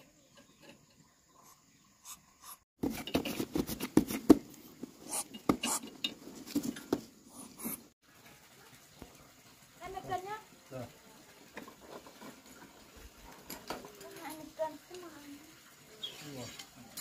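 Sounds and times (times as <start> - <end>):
objects knocking and clattering: 2.8 - 7.2, 11.5 - 14.5.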